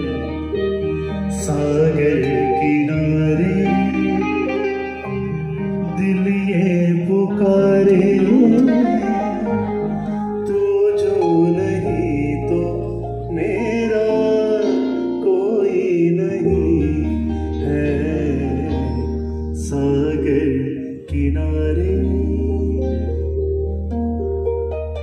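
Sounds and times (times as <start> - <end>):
man singing: 0.0 - 23.8
bass guitar: 0.0 - 25.0
electric guitar: 0.0 - 25.0
keyboard: 0.0 - 25.0.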